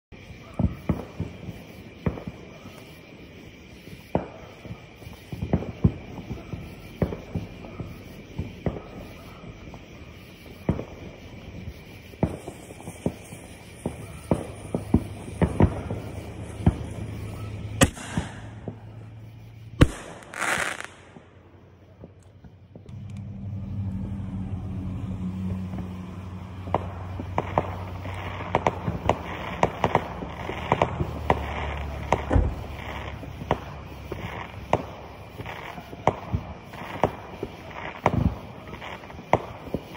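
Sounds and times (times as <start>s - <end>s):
firecrackers banging and popping: 0.1s - 23.3s, 24.9s - 39.9s
hissing bursts: 0.2s - 21.6s
steady low hum: 22.8s - 29.0s.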